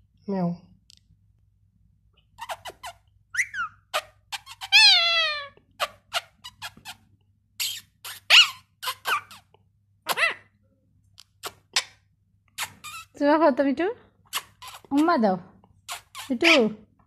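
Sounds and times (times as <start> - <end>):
parakeet squeaking and chirping: 2.3 - 9.5, 10.1 - 10.5, 11.3 - 13.2, 14.3 - 15.2, 15.8 - 16.8.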